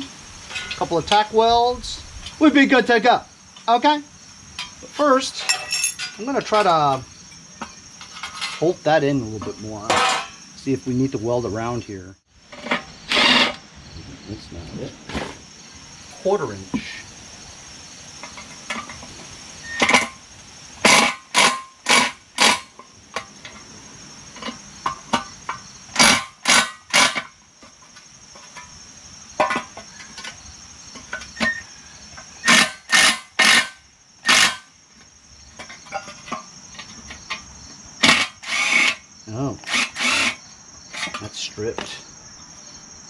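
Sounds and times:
crickets chirping: 0.0 - 43.0
cordless drill bursts: 13.1 - 13.6, 32.5 - 34.6, 38.0 - 39.0, 39.6 - 40.4.

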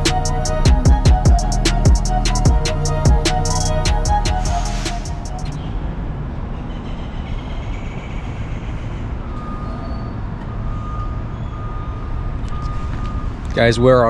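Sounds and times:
low engine rumble: 0.0 - 5.9.

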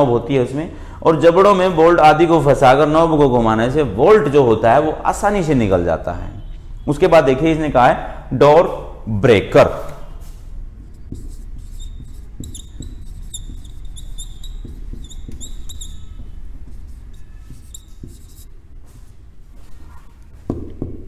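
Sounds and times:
marker pen squeaking on whiteboard: 9.7 - 18.8, 19.6 - 20.4.

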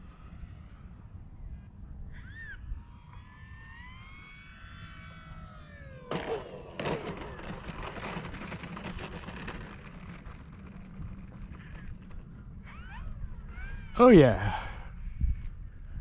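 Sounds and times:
model plane motor whining: 2.2 - 14.0
plane rattling on runway: 6.0 - 13.1.

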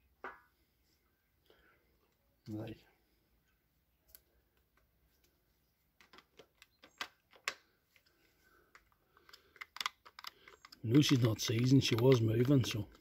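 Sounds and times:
plastic and metal parts clicking: 6.0 - 13.0.

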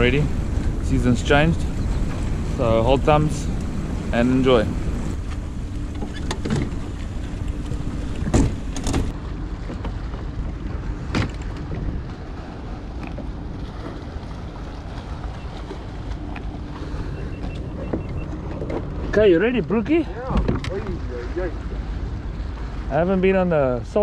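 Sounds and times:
water around boat: 0.0 - 24.0
wind rumble on microphone: 0.0 - 24.0
motor knocking against hull: 1.5 - 12.2, 15.5 - 20.9.

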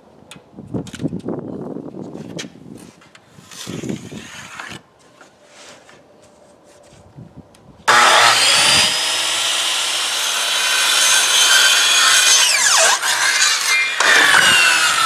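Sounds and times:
circular saw cutting plywood: 7.9 - 15.0.

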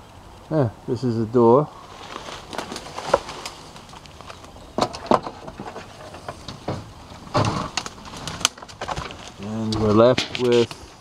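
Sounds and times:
footsteps crunching on ground: 1.8 - 6.0.

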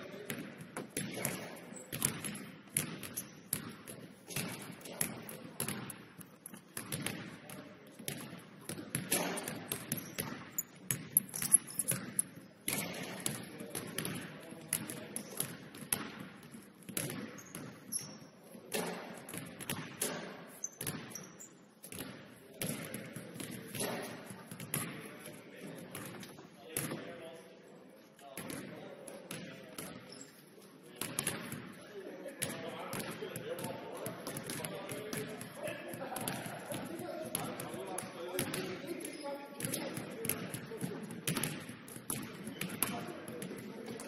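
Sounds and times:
basketballs bouncing on wooden floor: 0.1 - 27.0, 28.4 - 30.1, 31.0 - 31.7, 32.4 - 44.0.

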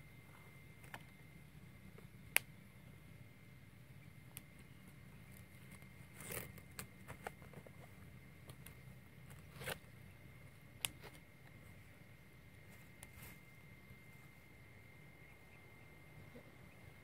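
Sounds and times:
small clicks and cracks of sticks: 2.0 - 2.6, 4.3 - 4.7, 5.3 - 9.9, 10.8 - 11.6
leaf parcels rustling and crinkling: 4.7 - 10.1.

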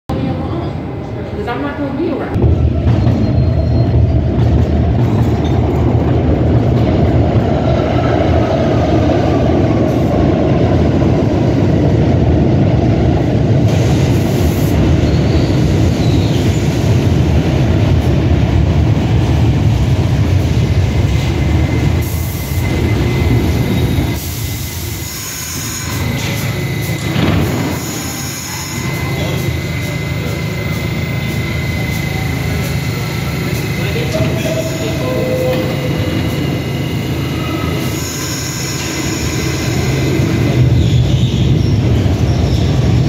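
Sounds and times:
subway train wheels rumbling: 0.1 - 43.0
faint high squeal: 3.0 - 4.2.

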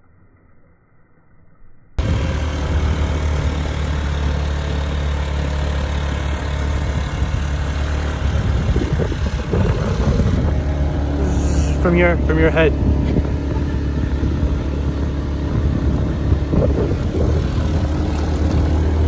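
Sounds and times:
motorbike engine running: 2.0 - 19.0
wind noise on microphone: 6.0 - 19.0.

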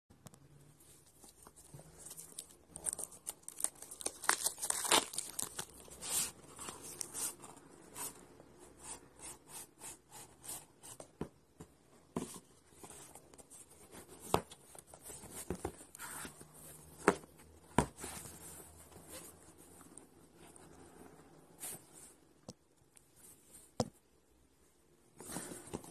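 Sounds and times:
paper and plastic wrap crinkling: 1.2 - 7.4.

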